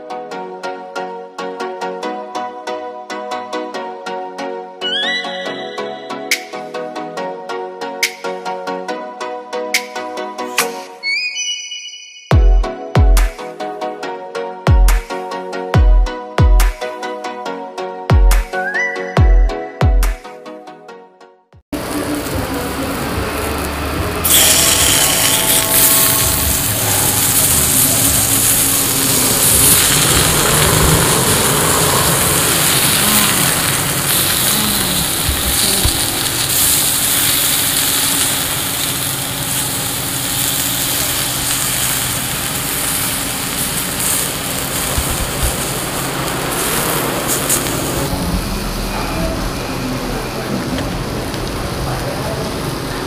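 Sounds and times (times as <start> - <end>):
meat sizzling on a grill pan: 22.2 - 48.1.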